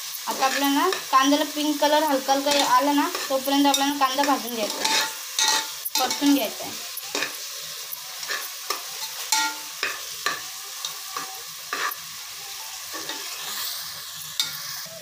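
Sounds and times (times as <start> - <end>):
onions sizzling in hot oil: 0.0 - 15.0
spatula scraping a pot: 2.5 - 6.2, 8.2 - 10.4, 11.2 - 12.0.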